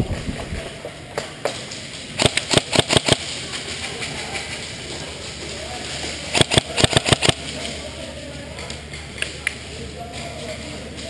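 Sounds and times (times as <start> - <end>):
airsoft gunfire: 2.2 - 3.4, 6.3 - 7.6.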